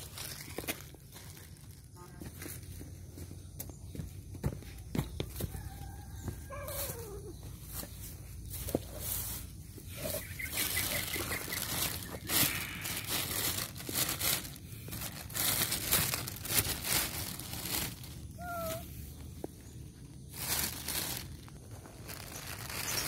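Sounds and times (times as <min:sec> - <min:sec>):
plastic bag crinkling: 0:00.0 - 0:01.9, 0:10.0 - 0:18.8, 0:20.2 - 0:23.0.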